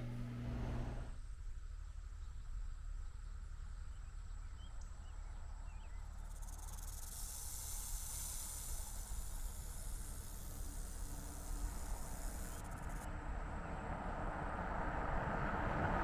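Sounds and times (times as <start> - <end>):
high steady hiss: 0.0 - 13.1
faint chirps: 3.2 - 13.1.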